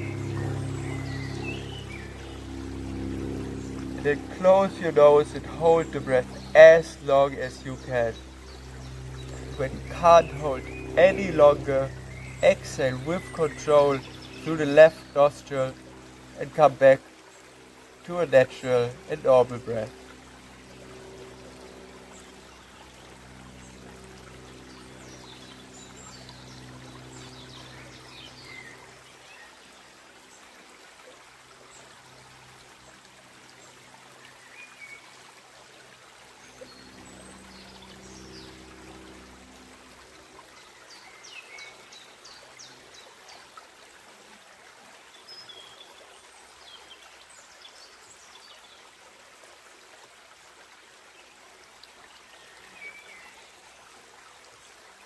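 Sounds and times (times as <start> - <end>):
faint low hum: 0.0 - 29.2
creek running over rocks: 0.0 - 55.0.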